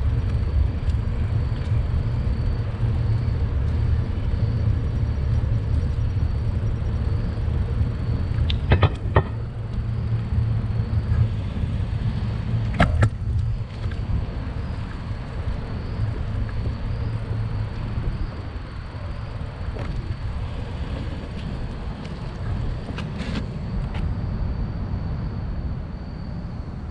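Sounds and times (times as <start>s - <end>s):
bicycle riding rumble: 0.0s - 26.9s
traffic noise: 0.0s - 26.9s
sharp knocks: 8.6s - 9.5s.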